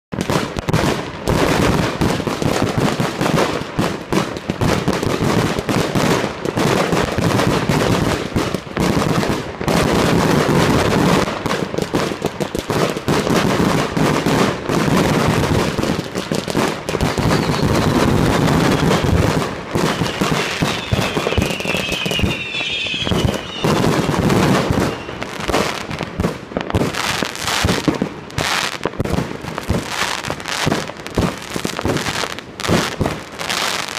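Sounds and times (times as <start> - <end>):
fireworks bangs and crackling: 0.1 - 33.9
firework whistles: 16.9 - 26.0.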